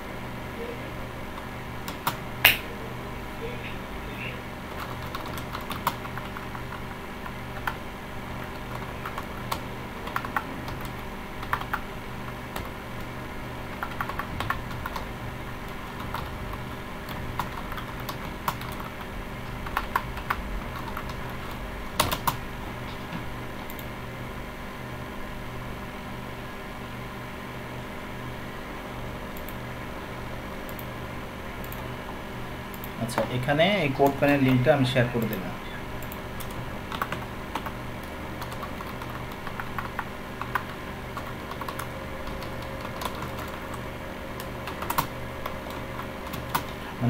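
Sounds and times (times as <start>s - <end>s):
steady low hum: 0.0s - 47.0s
typing on computer keyboard: 4.7s - 7.8s, 8.4s - 12.8s, 13.8s - 22.4s, 36.0s - 43.8s, 44.4s - 46.8s.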